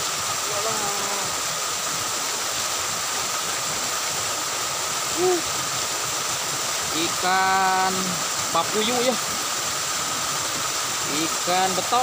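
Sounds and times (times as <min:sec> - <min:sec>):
waterfall pouring into pool: 0:00.0 - 0:12.0
person humming hm: 0:05.1 - 0:05.5.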